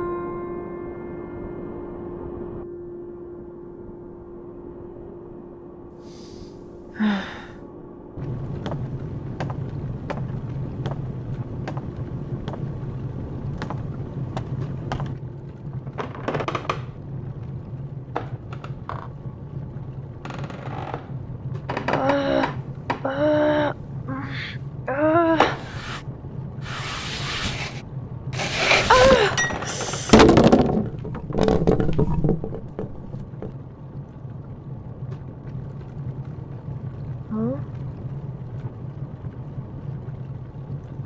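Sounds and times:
held musical note: 0.0s - 7.0s
low steady hum: 0.0s - 41.0s.

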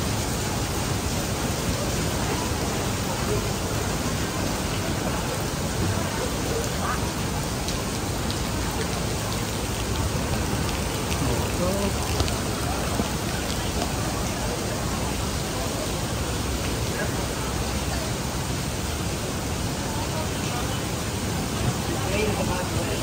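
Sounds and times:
heavy rain on pavement: 0.0s - 23.0s
raindrops ticking: 2.6s - 14.9s.

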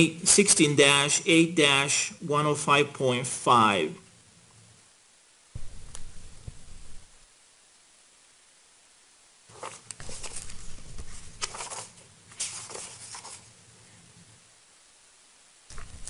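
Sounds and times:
paper rustling: 9.5s - 13.5s, 15.7s - 16.0s.

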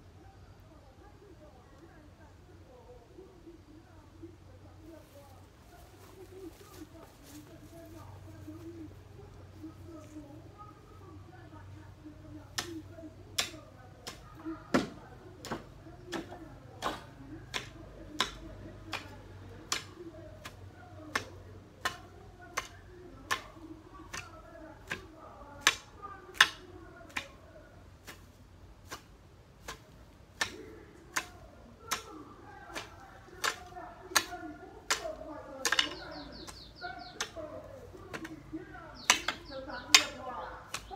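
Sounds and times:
garden tool chopping ground: 5.7s - 8.8s, 12.4s - 40.9s.

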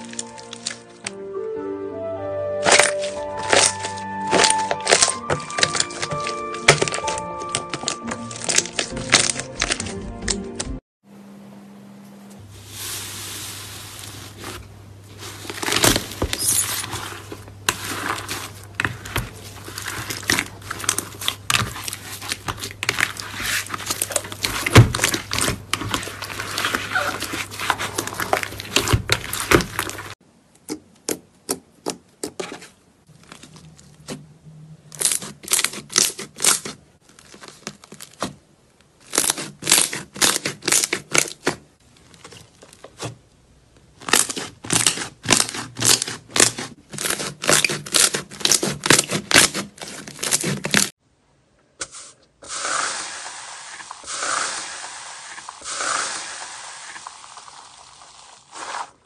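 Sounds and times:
hands kneading slime: 2.6s - 9.9s, 12.6s - 34.3s, 39.0s - 43.2s, 43.8s - 50.9s
slime crackling and popping: 2.6s - 9.9s, 15.4s - 30.2s, 35.0s - 38.3s, 39.0s - 43.1s, 44.0s - 50.9s, 52.6s - 59.0s.

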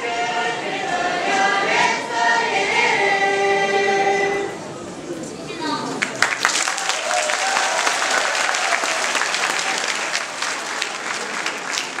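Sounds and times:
audience applauding: 6.0s - 12.0s.

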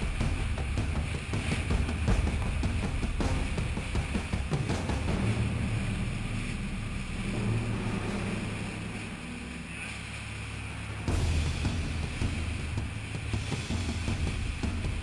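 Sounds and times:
boat engine droning: 0.0s - 15.0s
hull through choppy water: 0.0s - 15.0s.

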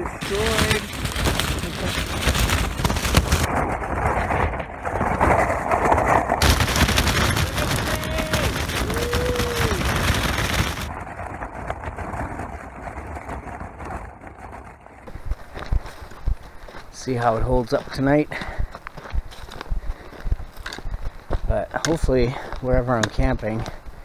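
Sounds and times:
wind rushing over microphone: 0.0s - 14.4s
tent fabric flapping: 0.0s - 17.0s.

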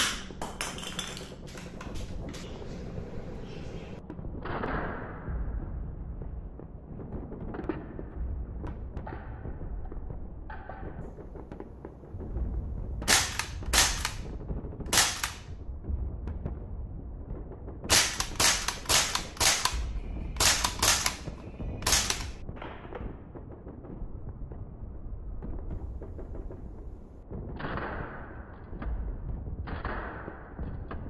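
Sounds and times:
airsoft rifle gunshot cracks: 13.0s - 14.3s, 14.9s - 15.5s, 17.9s - 22.4s.

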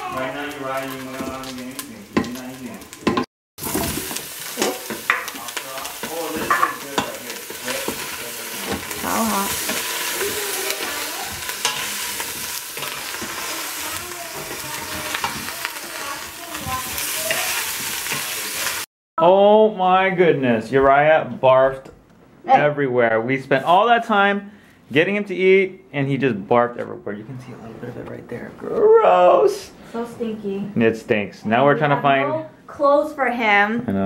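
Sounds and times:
meat sizzling in metal pot: 0.0s - 18.9s
wooden spatula scraping metal: 6.0s - 15.5s.

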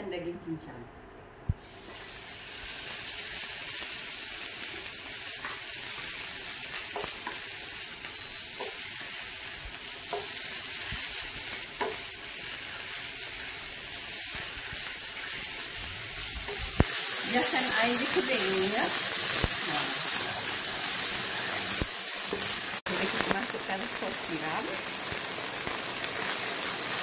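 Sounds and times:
meat sizzling in a frying pan: 1.6s - 27.0s
wooden spatula tapping pan: 11.8s - 12.1s.

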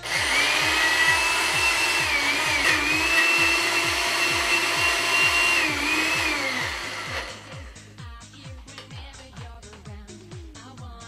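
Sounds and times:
blender motor whining: 0.0s - 7.8s.

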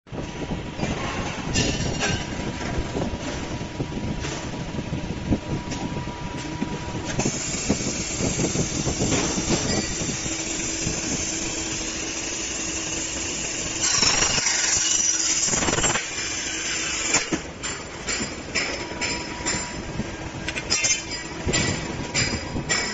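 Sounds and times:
wire bending machine clattering: 7.1s - 22.9s.

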